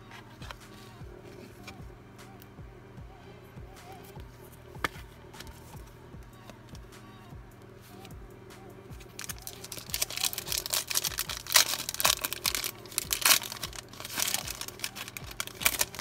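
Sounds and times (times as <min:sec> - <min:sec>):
foil wrapper tearing and crinkling: 0:09.1 - 0:16.0.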